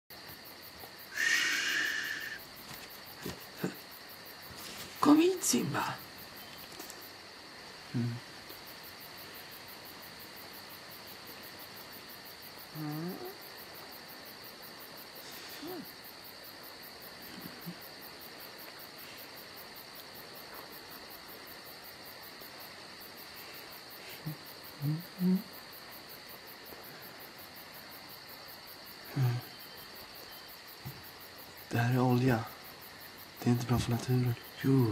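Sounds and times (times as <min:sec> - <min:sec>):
crickets chirring: 0:00.1 - 0:34.9
brief low vocal sounds: 0:08.0 - 0:08.2, 0:24.2 - 0:25.5.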